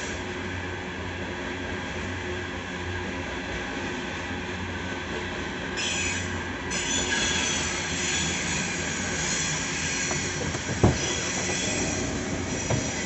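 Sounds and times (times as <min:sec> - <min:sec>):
wheels squealing on rail: 0:05.8 - 0:13.0
train cars rumbling past: 0:07.0 - 0:13.0.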